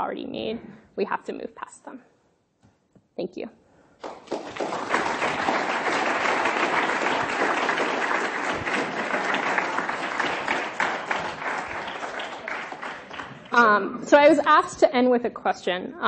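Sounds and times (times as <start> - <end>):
audience applauding: 4.0 - 13.7.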